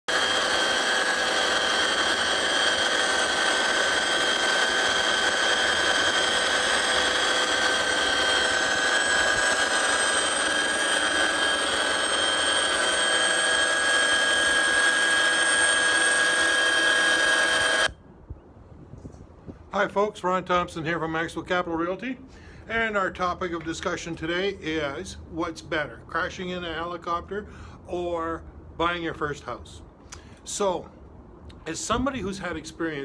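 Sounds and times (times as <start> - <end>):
helicopter engine and rotor noise: 0.1 - 18.0
high whining tones: 0.1 - 18.0.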